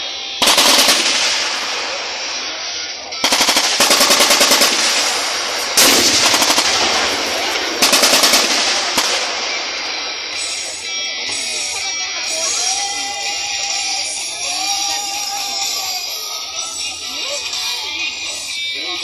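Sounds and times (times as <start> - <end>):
machine-gun fire bursts: 0.4 - 10.7.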